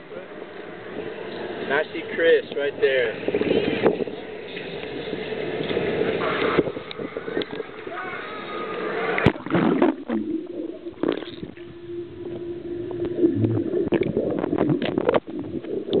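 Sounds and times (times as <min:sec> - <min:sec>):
people chatting poolside: 0:00.0 - 0:10.7
low underwater hum: 0:00.0 - 0:16.0
underwater bubbling: 0:03.2 - 0:16.0.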